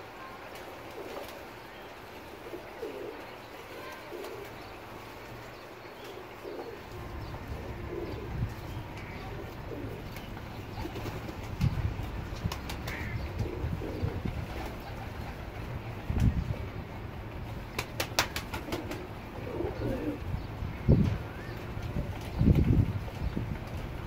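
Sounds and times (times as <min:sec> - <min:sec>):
pigeons cooing: 0:00.0 - 0:16.7, 0:18.0 - 0:21.6
wing flaps: 0:17.6 - 0:19.2.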